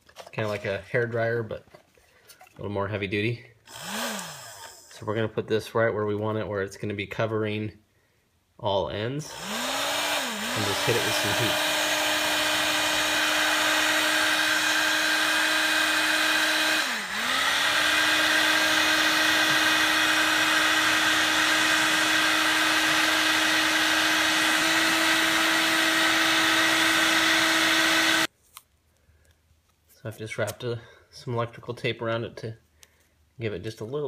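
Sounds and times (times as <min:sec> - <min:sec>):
heat gun fan humming: 0:03.7 - 0:05.0, 0:09.2 - 0:28.3.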